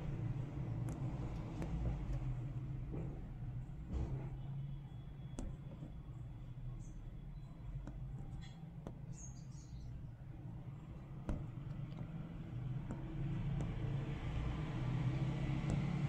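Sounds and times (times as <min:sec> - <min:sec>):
faint needle clicks on beads: 0:00.0 - 0:02.6, 0:07.5 - 0:09.9, 0:10.9 - 0:16.0
steady low hum: 0:00.0 - 0:16.0.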